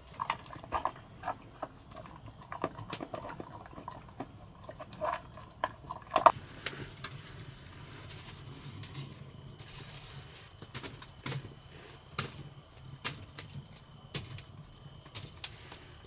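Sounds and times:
dog eating from bowl: 0:00.0 - 0:06.4.

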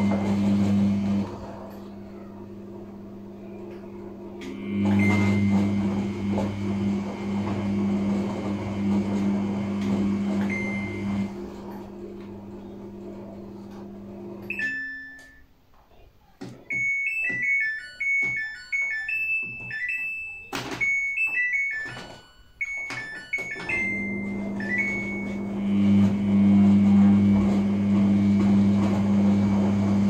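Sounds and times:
washing machine motor humming: 0:00.0 - 0:15.5, 0:16.5 - 0:30.0
electronic chiming tune: 0:16.7 - 0:25.6.

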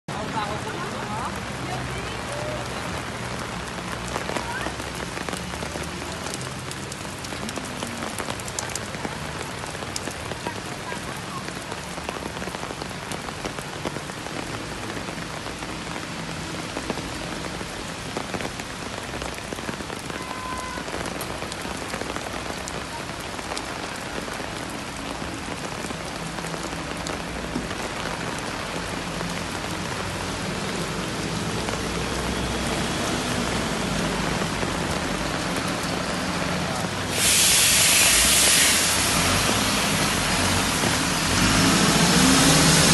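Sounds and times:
rain pouring on street: 0:00.1 - 0:42.9.

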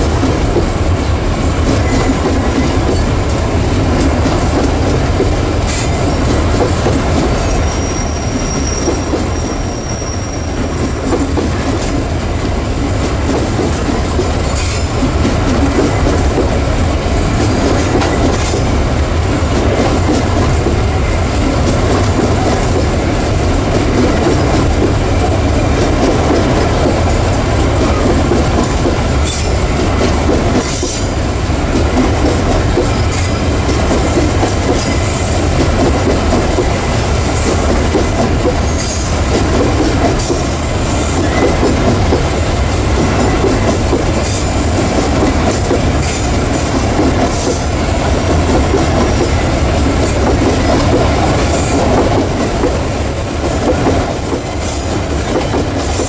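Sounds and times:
train wheels rumbling on rails: 0:00.0 - 0:56.0
high wheel squeals: 0:07.6 - 0:12.9.

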